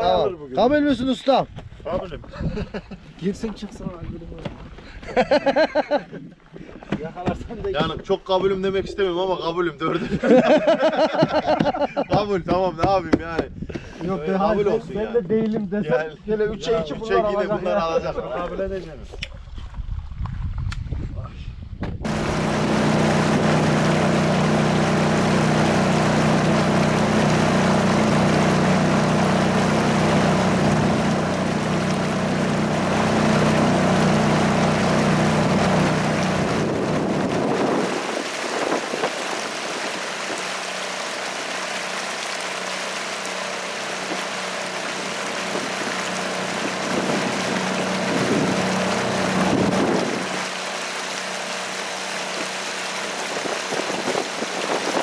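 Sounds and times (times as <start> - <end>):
wind: 0.0 - 55.0
outboard motor running: 10.0 - 13.0, 22.0 - 55.0
water noise: 22.0 - 55.0.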